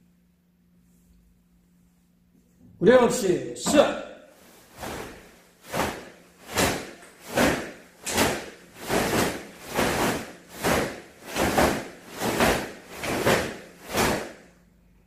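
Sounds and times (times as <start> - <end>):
uniforms snapping with punches: 4.8 - 14.4.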